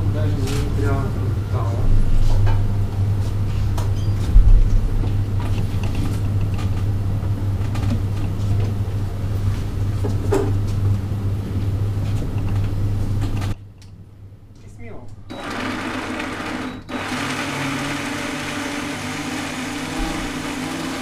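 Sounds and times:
blender grinding: 0:15.3 - 0:21.0.

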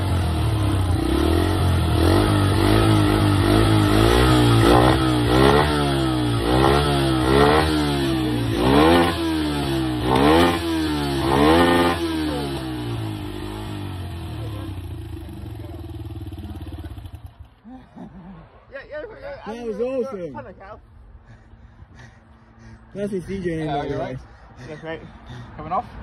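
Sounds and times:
motorbike engine revving: 0:00.0 - 0:17.6.

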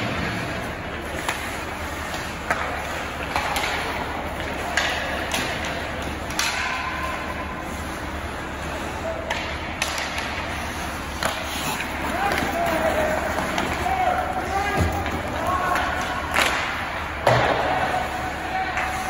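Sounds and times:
sticks striking puck: 0:01.0 - 0:07.4, 0:09.2 - 0:18.0
skates hissing on ice: 0:10.3 - 0:14.6.

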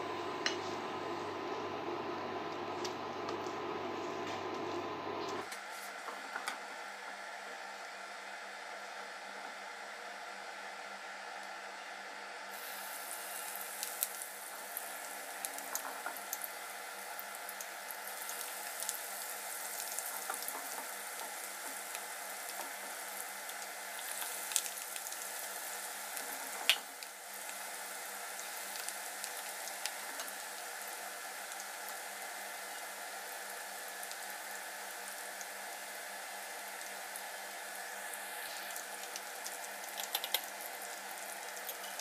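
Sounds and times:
fritters sizzling in hot oil: 0:12.5 - 0:42.0.

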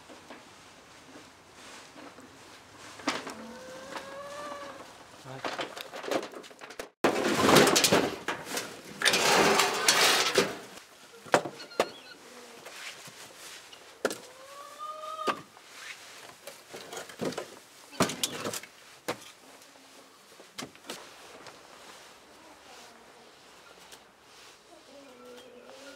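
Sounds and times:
firewood clattering onto pile: 0:05.2 - 0:11.5, 0:16.7 - 0:19.4.

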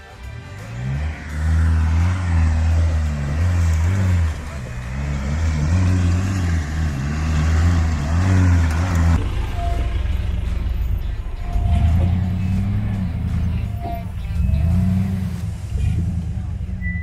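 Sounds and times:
pickup engine working hard: 0:00.0 - 0:17.0
rough vehicle engine: 0:00.0 - 0:17.0.

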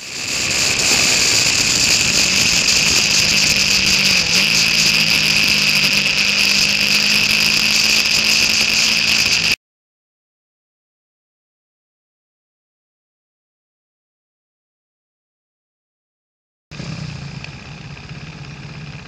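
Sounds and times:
motorcycle engine running: 0:00.0 - 0:09.6, 0:16.7 - 0:19.0
wind rush on microphone: 0:00.0 - 0:09.6.

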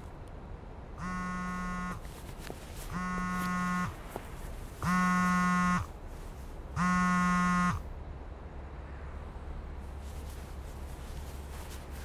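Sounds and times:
mobile phone buzzing: 0:01.0 - 0:02.0, 0:02.9 - 0:04.0, 0:04.8 - 0:06.0, 0:06.8 - 0:07.8.

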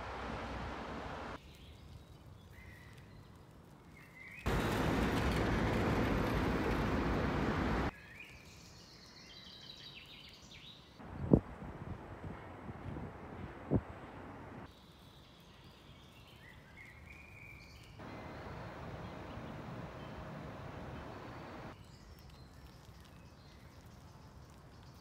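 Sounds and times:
traffic hum: 0:00.0 - 0:01.4, 0:04.5 - 0:07.9, 0:11.0 - 0:14.7, 0:18.0 - 0:21.8.

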